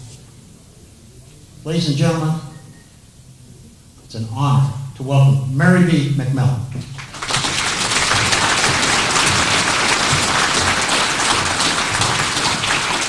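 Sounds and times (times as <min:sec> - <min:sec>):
crowd applauding: 0:06.7 - 0:13.0.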